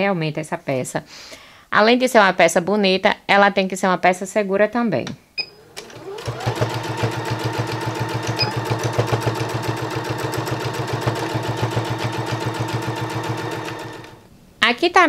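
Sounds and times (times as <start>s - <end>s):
sewing machine stitching: 5.4s - 14.3s.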